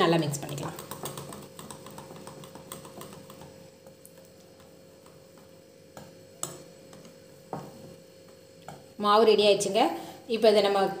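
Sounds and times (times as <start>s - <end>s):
whisk ticking against bowl: 0.1s - 7.1s.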